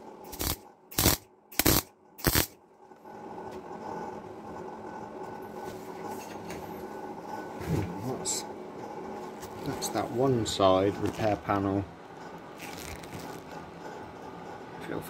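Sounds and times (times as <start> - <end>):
steady hum: 0.0 - 15.0
mig welder bursts: 0.3 - 2.6.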